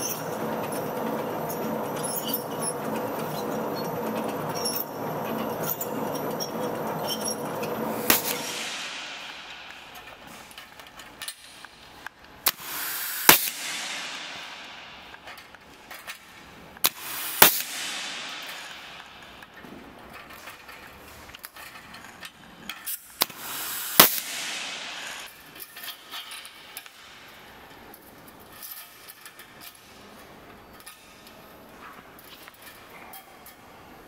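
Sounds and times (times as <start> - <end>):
wire clinking: 0.0 - 12.5
air hiss of clipping tool: 8.0 - 10.6, 12.4 - 14.9, 16.8 - 19.1, 23.2 - 25.3
exhaust air hiss: 12.5 - 14.5, 16.8 - 18.7, 23.3 - 25.3.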